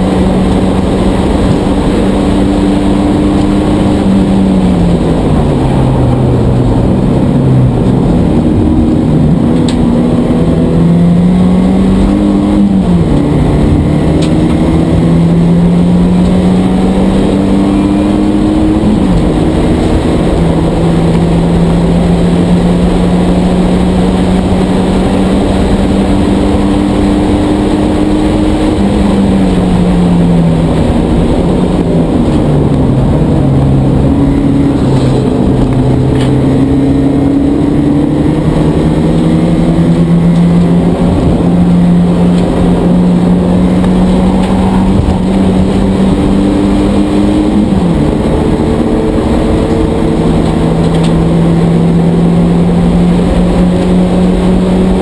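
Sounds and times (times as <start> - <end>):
race car engine: 0.0 - 55.0
road and wind noise: 0.0 - 55.0.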